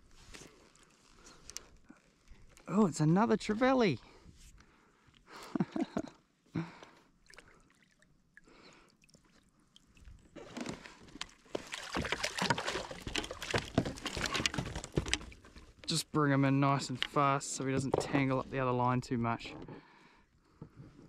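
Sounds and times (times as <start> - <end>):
fish splashing in water: 11.4 - 14.6.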